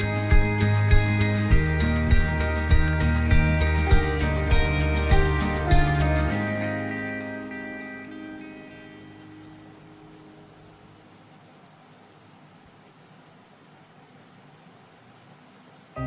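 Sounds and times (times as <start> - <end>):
background music: 0.0 - 9.3
cricket chirping: 0.0 - 16.0.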